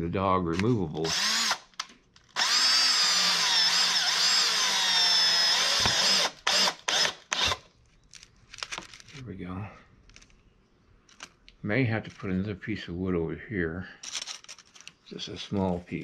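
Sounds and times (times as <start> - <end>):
drill trigger pulls: 0.6 - 7.7
electric drill drilling into wood: 1.0 - 1.7, 2.3 - 7.6.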